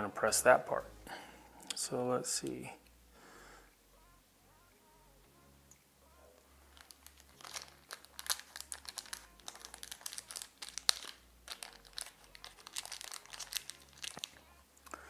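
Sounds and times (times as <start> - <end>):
small parts crinkling clicks: 6.7 - 15.0.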